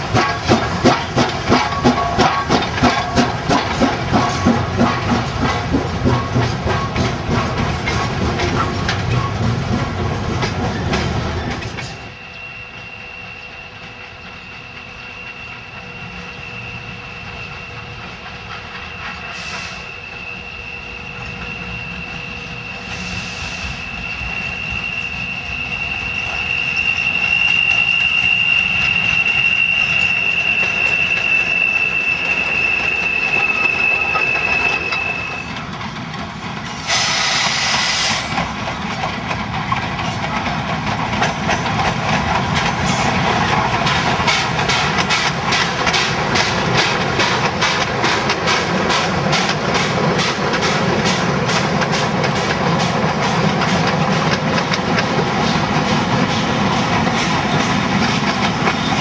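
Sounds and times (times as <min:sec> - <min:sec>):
rail clatter: 0:00.0 - 0:12.2, 0:21.1 - 0:59.0
steam locomotive exhaust beats: 0:00.0 - 0:59.0
steam hisses: 0:11.8 - 0:35.5, 0:36.7 - 0:38.7
high-pitched wheel squeal: 0:12.0 - 0:35.6.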